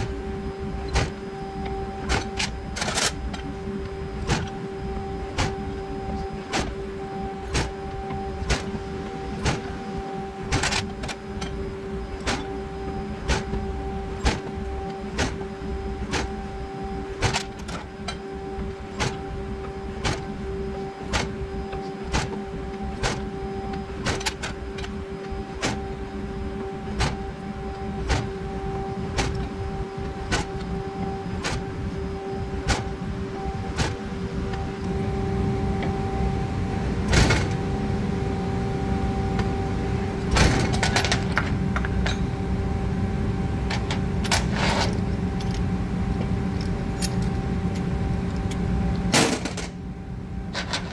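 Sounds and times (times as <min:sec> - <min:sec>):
press brake humming: 0:00.0 - 0:42.7.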